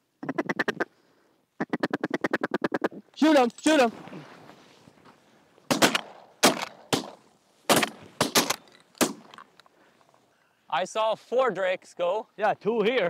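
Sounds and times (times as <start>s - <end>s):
shotguns firing: 5.7s - 9.4s.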